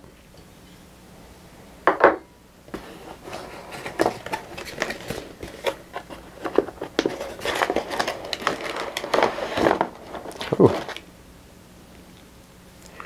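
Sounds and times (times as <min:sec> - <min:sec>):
cardboard and plastic rustling: 0:02.7 - 0:11.1.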